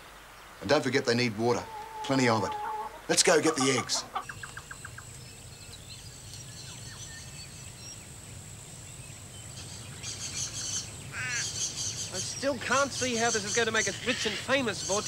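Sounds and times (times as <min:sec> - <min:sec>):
faint bird chirps: 0:02.6 - 0:08.1
constant high whine: 0:03.1 - 0:15.0.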